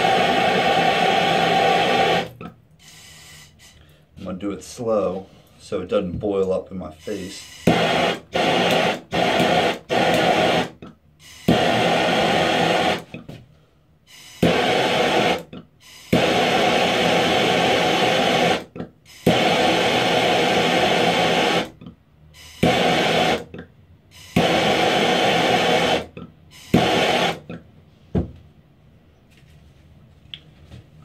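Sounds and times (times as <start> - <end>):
torch flame hissing: 0.0 - 2.4, 7.1 - 13.1, 14.1 - 21.8, 22.4 - 23.5, 24.2 - 27.5.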